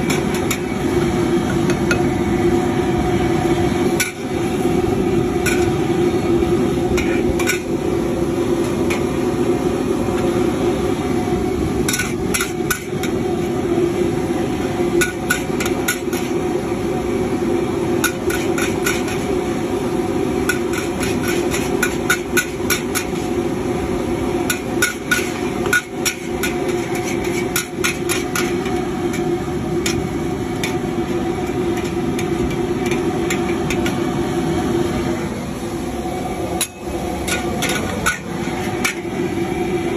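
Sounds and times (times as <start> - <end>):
spatula clanking against wok: 0.0 - 0.8, 11.9 - 13.2, 15.0 - 16.4, 18.0 - 19.3, 20.4 - 23.3, 24.4 - 30.8, 31.4 - 34.0
steady background rumble: 0.0 - 39.9.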